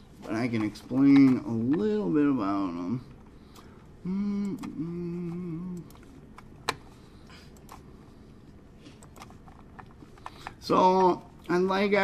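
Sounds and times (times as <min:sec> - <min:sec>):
man humming hesitantly: 0:04.0 - 0:06.0.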